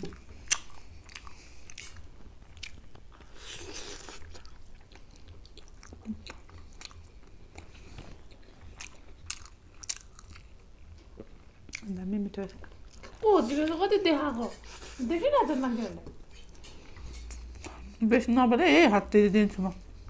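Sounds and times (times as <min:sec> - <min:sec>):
chewing and mouth smacks: 0:00.0 - 0:13.8, 0:16.0 - 0:18.0.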